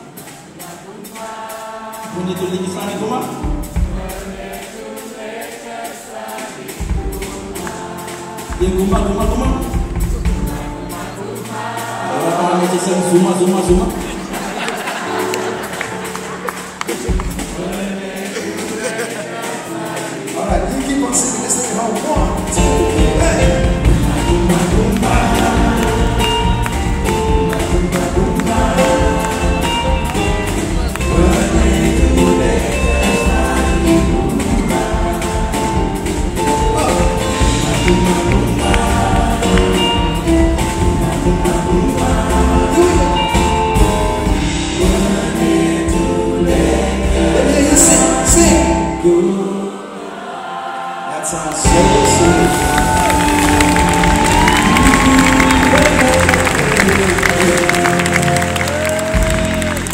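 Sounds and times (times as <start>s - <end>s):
drum kit: 0.0s - 49.0s, 51.5s - 59.9s
man singing: 7.8s - 14.4s, 17.0s - 49.8s, 51.1s - 59.9s
electric bass: 22.5s - 48.9s.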